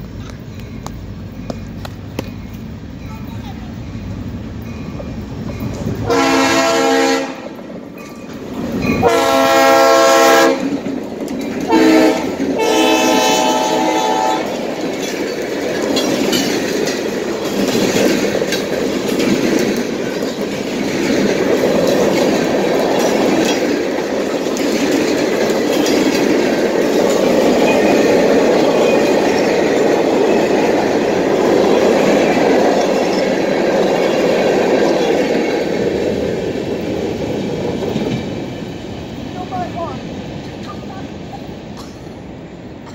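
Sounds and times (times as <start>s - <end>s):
train running on rails: 0.0s - 42.9s
train horn blasts: 6.0s - 7.6s, 9.0s - 10.7s, 11.7s - 14.6s.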